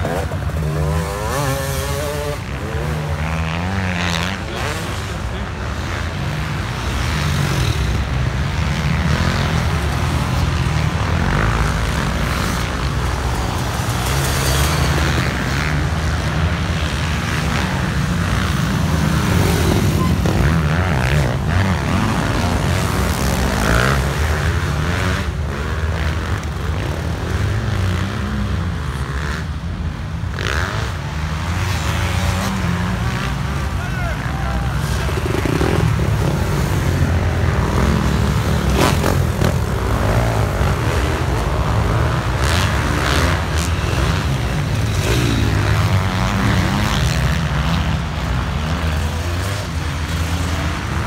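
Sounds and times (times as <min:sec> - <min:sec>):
dirt bike engines revving: 0:00.0 - 0:51.0.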